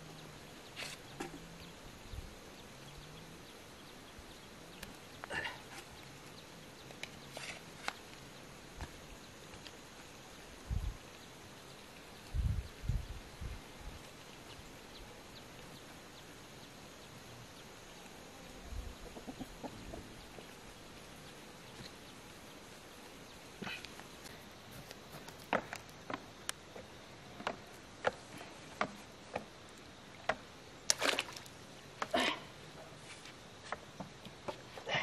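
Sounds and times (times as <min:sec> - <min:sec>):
chickens clucking: 0:18.9 - 0:20.5.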